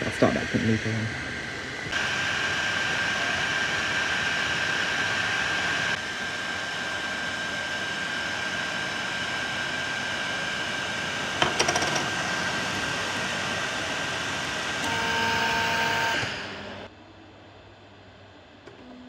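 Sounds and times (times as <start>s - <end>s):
cooling fans hissing and whining: 0.0s - 19.0s.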